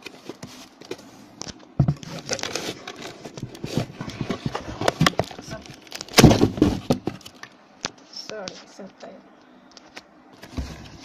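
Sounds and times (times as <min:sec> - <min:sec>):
paper crinkling: 0:00.0 - 0:06.2
hands handling paper-wrapped box: 0:00.0 - 0:07.3.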